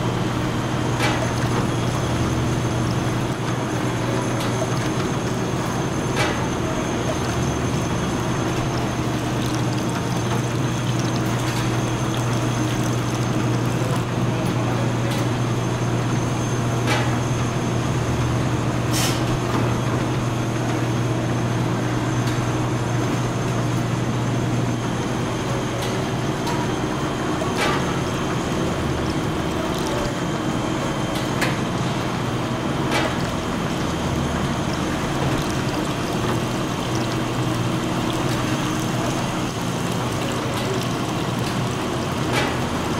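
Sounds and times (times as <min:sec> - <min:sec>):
machinery humming: 0:00.0 - 0:42.9.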